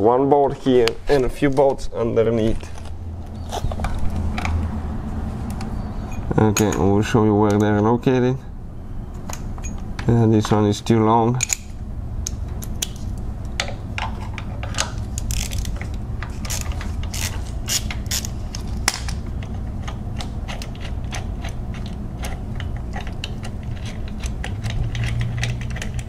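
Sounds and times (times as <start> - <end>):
hand ratchet clicking: 16.4 - 18.6.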